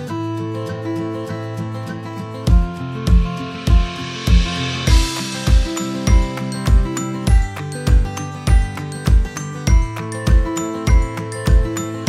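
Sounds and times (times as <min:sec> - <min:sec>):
music with kick drum beat: 0:02.5 - 0:12.0.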